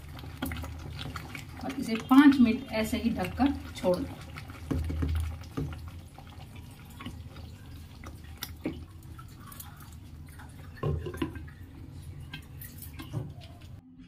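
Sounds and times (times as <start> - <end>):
curry simmering with bubbling pops: 0.0 - 13.8.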